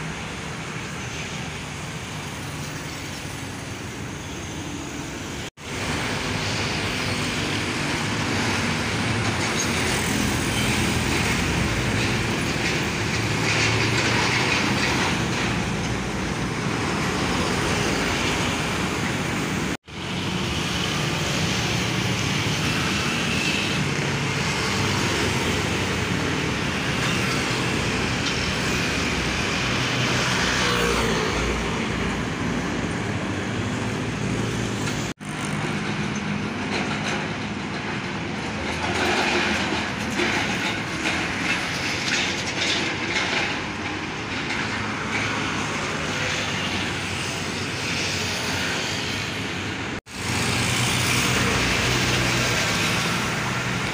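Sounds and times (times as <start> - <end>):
road traffic passing: 0.0 - 53.9.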